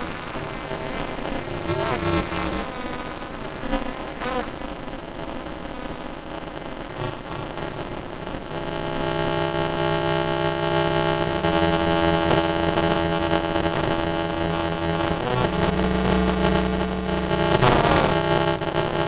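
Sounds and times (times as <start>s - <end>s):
droning synthesizer chord: 14.0s - 19.0s.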